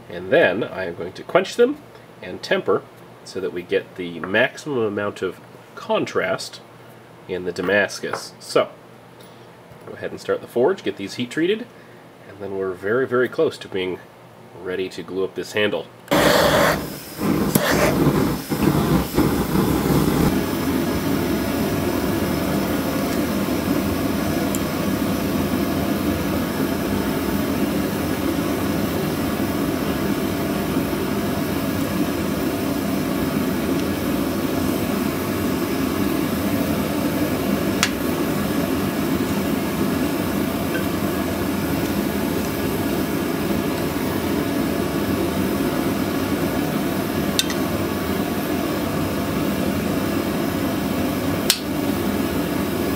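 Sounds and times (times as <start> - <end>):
gas burner rushing: 16.1 - 52.9.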